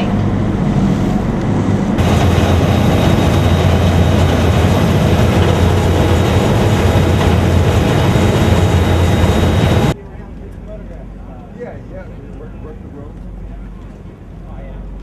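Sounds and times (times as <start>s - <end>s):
churning water from wake: 0.0s - 10.0s
motorboat engine drone: 0.0s - 10.0s.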